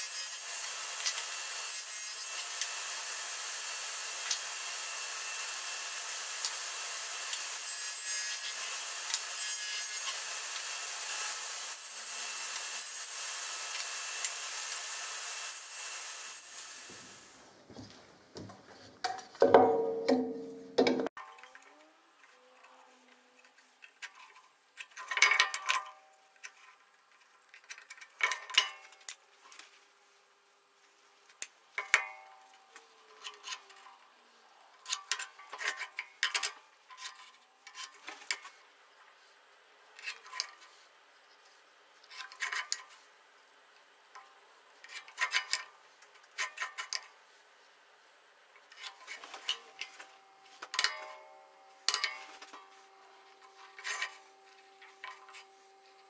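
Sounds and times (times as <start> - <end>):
metal tools scraping on wood: 48.7 - 56.0.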